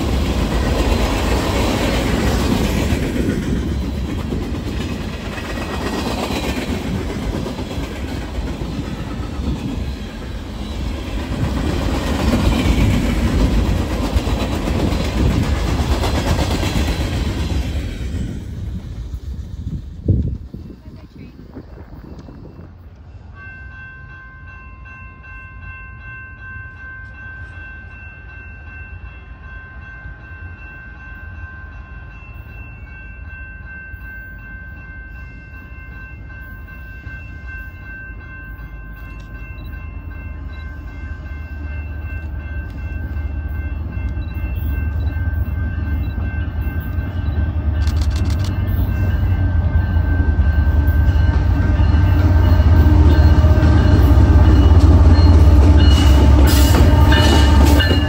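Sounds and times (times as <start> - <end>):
diesel locomotive engine rumble: 0.0 - 24.2, 26.7 - 58.0
high-pitched ringing tones: 21.9 - 58.0.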